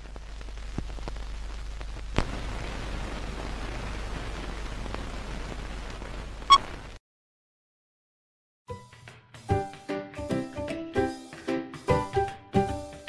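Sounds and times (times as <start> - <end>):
room noise hiss: 0.0 - 7.0.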